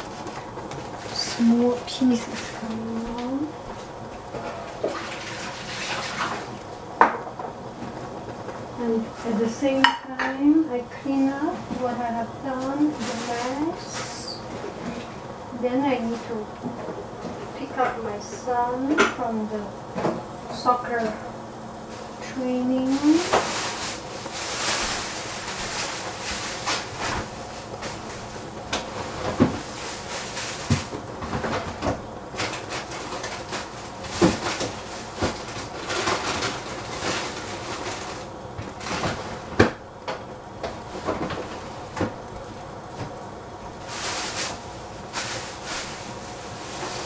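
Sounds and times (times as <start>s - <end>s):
kitchen items knocking and bumping: 22.8s - 38.1s.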